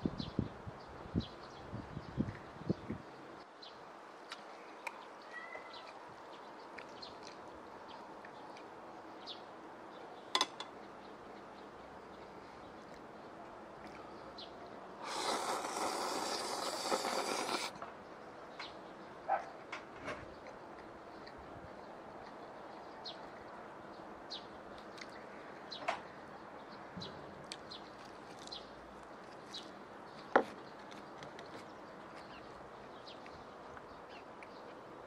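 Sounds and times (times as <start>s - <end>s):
person slurping noodles: 15.0s - 17.8s.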